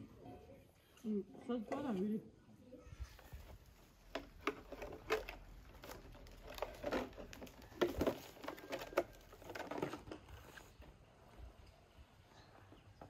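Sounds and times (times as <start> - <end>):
rustling through branches and leaves: 2.8 - 12.8.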